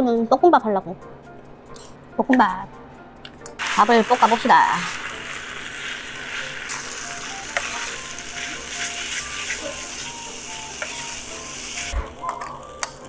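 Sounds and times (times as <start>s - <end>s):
light background music: 0.0s - 13.0s
metal spoon scraping a pan: 3.6s - 12.6s
rice sizzling in a pan: 3.6s - 13.0s.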